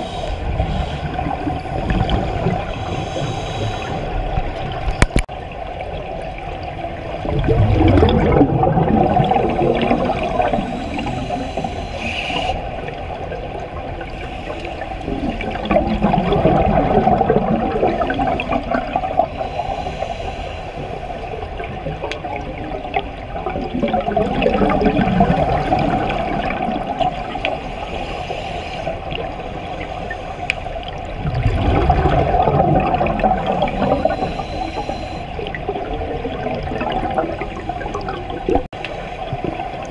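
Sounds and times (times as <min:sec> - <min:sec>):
low water rush: 0:00.0 - 0:39.9
underwater exhaled bubbles: 0:00.0 - 0:39.9.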